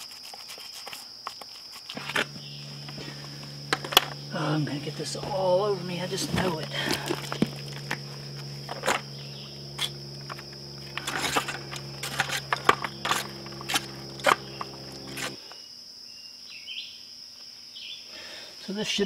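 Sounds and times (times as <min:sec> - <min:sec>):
paint roller working in gravel: 0:00.0 - 0:15.5
high insect drone: 0:00.0 - 0:19.0
low steady hum: 0:01.9 - 0:15.5.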